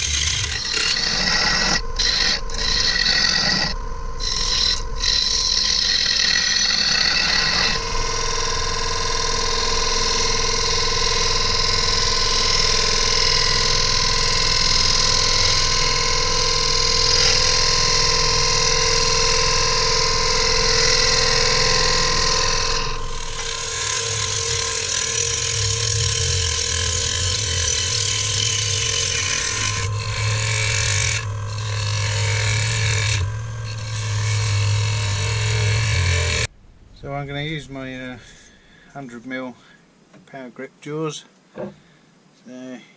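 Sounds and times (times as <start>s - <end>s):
gouge cutting wood hiss: 0.0s - 36.5s
lathe motor whine: 0.0s - 36.5s
low hum: 0.0s - 40.1s.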